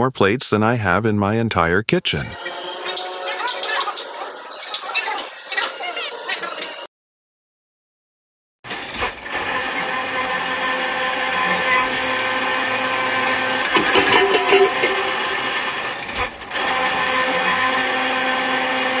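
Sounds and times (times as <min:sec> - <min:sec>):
rattling: 0:02.4 - 0:04.9, 0:13.7 - 0:16.4
winch motor whining hum: 0:02.4 - 0:06.9, 0:08.7 - 0:19.0.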